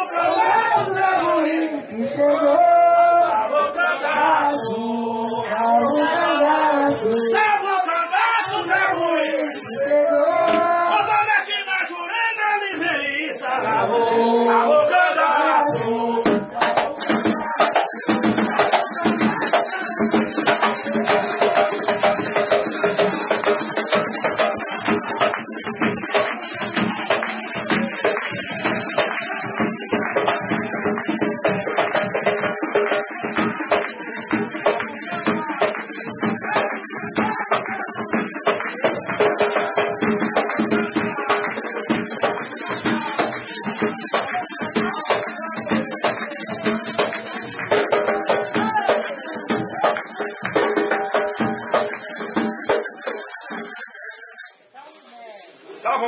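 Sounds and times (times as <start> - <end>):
group singing a chant in unison: 0.0 - 11.3, 12.6 - 53.2
drum beats: 15.7 - 54.5
rattles shaken: 17.0 - 54.6.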